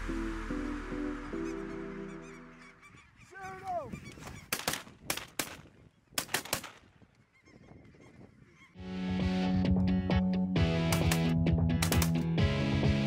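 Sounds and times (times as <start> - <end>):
geese honking: 0.5 - 4.7, 7.2 - 9.3
shotgun shots: 4.5 - 5.6, 6.2 - 6.9, 10.9 - 12.2.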